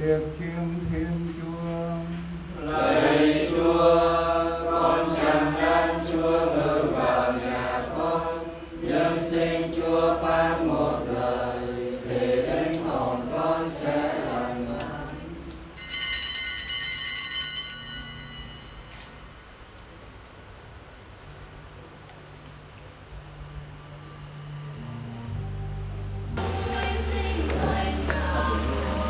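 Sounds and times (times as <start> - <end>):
voices singing slow chant: 0.0 - 15.8, 26.4 - 29.0.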